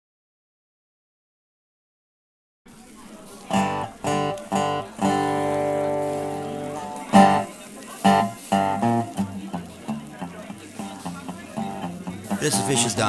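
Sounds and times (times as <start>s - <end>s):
guitar strumming chords: 3.5s - 13.0s.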